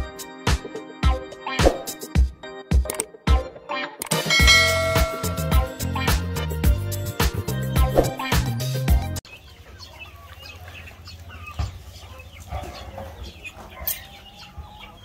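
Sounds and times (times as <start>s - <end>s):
chickens clucking: 9.2s - 15.0s.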